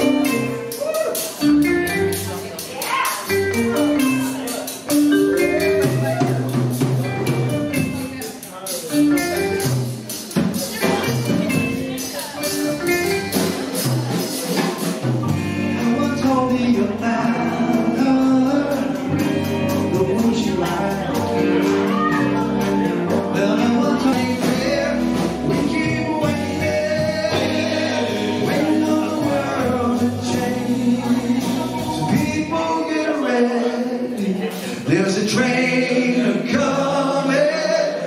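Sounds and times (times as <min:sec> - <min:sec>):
electric guitars: 0:00.0 - 0:32.6
bass guitar: 0:00.0 - 0:33.0
drums: 0:00.0 - 0:38.0
man singing: 0:15.6 - 0:38.0.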